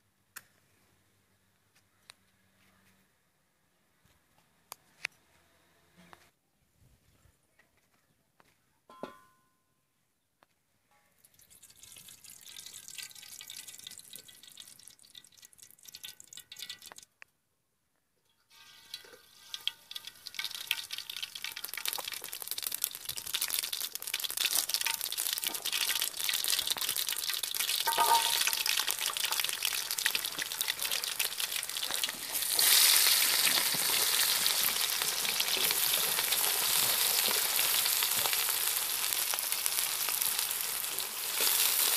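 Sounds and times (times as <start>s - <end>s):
oil crackling and sizzling: 11.2s - 17.1s, 18.4s - 41.9s
onions sizzling in hot oil: 18.6s - 41.9s.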